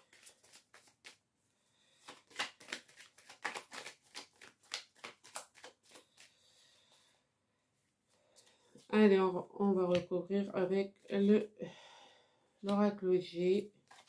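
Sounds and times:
cards being shuffled: 0.0 - 1.2, 1.9 - 6.6, 13.8 - 14.0.

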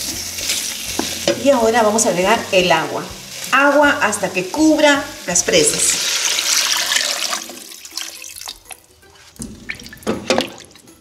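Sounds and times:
water pouring into pot: 5.6 - 8.9.

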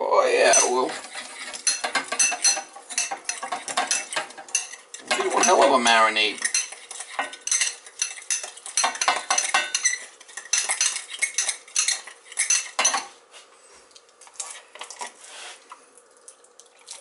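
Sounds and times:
spoon clinking in ceramic bowl: 1.5 - 5.7, 6.4 - 13.0.

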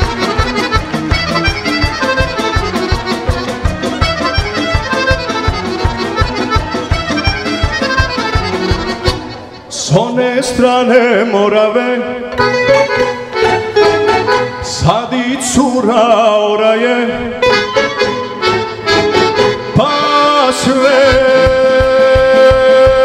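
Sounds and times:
steady drum beat: 0.0 - 9.2, 20.6 - 23.0
violins playing folk melody: 0.0 - 9.9, 11.2 - 15.6, 17.2 - 22.4
bass guitar: 0.0 - 23.0.

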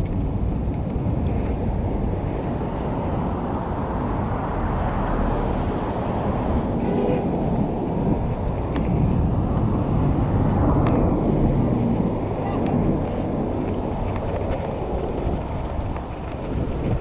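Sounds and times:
road traffic: 0.0 - 17.0
wind buffeting microphone: 0.0 - 17.0.

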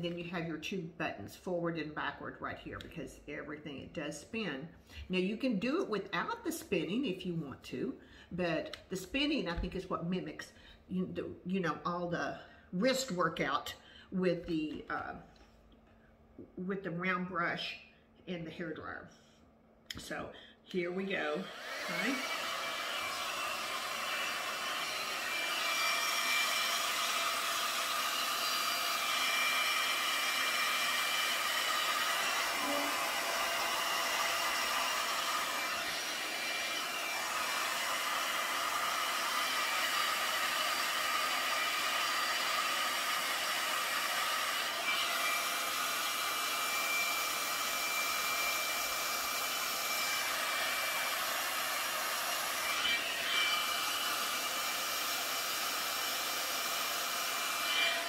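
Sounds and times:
hot-air brush blowing air: 20.8 - 58.0.

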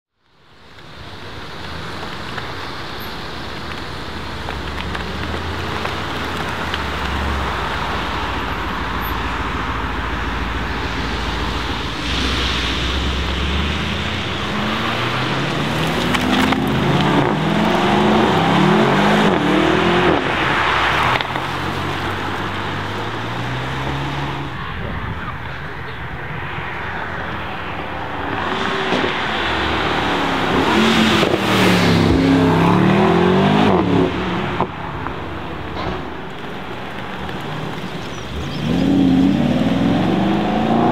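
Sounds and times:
car engine accelerating: 4.4 - 24.6, 36.4 - 40.9.

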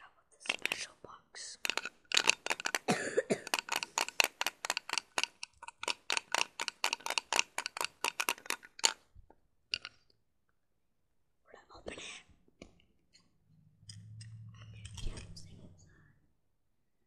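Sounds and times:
sharp clicks: 1.6 - 9.0.

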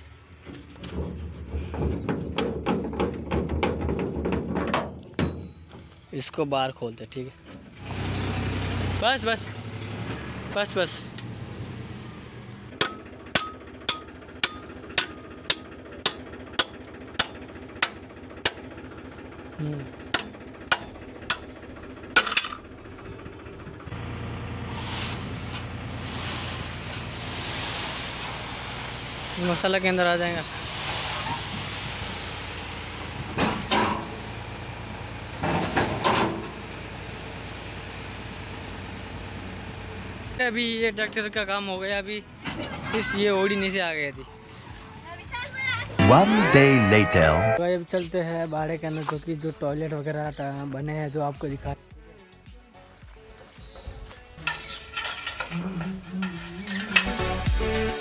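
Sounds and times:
tractor engine running: 7.6 - 27.2
hammer striking steel: 12.8 - 18.6
sand pouring out: 24.7 - 29.5.

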